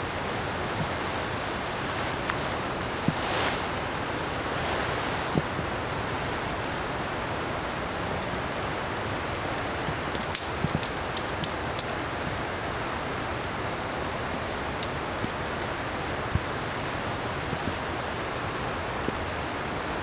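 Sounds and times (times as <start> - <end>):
rain falling on forest: 0.0 - 20.0
camping gear clicking: 4.4 - 12.4, 14.6 - 20.0.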